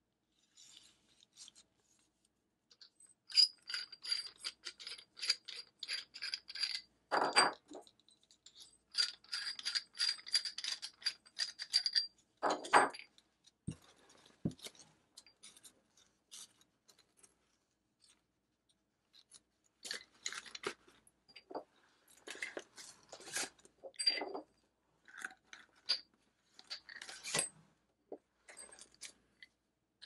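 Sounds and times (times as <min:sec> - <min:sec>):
metal tubes scraping clicks: 0:02.8 - 0:13.2.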